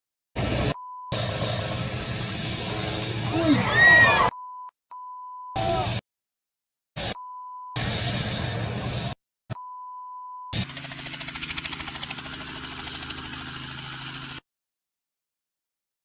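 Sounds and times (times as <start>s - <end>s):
helicopter engine hum: 0.4s - 3.8s, 7.8s - 9.1s, 10.5s - 14.4s
helicopter rotor chopping: 0.4s - 3.8s, 10.5s - 14.4s
loud rushing noise: 0.4s - 4.1s.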